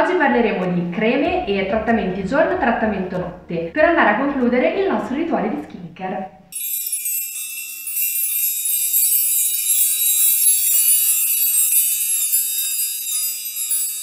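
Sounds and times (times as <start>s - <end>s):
wind chimes tinkling: 6.5s - 14.0s.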